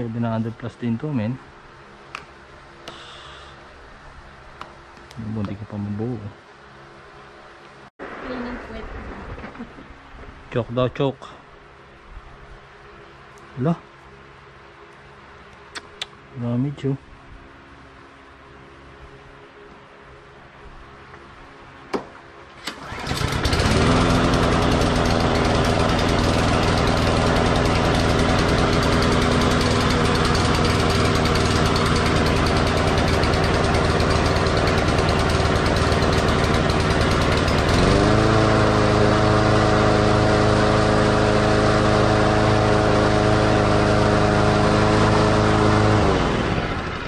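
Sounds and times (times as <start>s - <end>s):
sharp click: 15.6s - 16.2s
lawn mower engine running: 22.5s - 47.0s.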